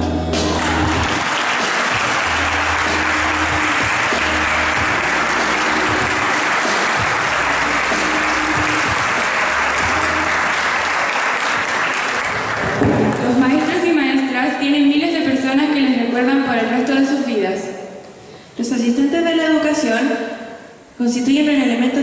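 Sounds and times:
audience applauding: 0.4 - 13.7.

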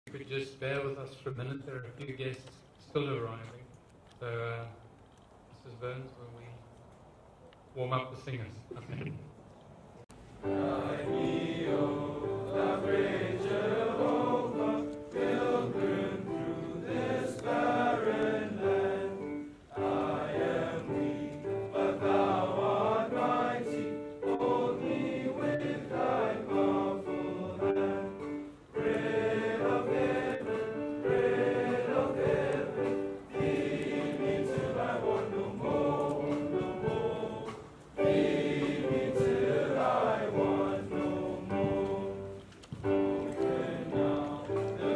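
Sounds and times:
boys choir singing: 10.4 - 44.9.

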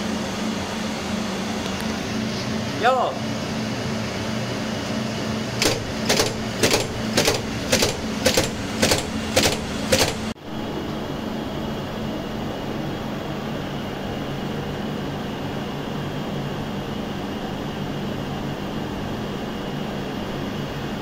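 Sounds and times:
electrical hum: 0.0 - 21.0
electrical contactor clacking: 5.6 - 10.4.

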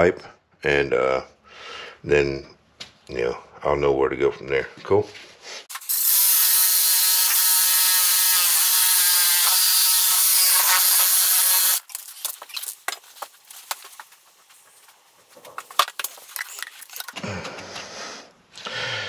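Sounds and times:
reciprocating saw cutting pipe: 5.7 - 11.9.

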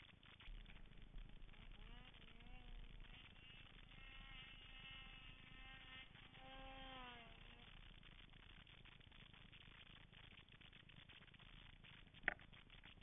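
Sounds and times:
distant snowmobile engine revving: 0.3 - 8.0.

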